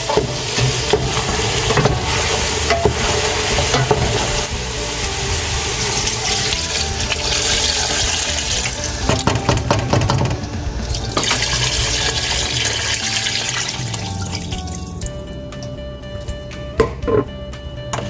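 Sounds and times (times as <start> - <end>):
meat sizzling in a pot: 0.0 - 10.0, 11.0 - 14.6
water splashing into pot: 5.8 - 14.9
wooden spoon knocking on pot: 9.0 - 10.5.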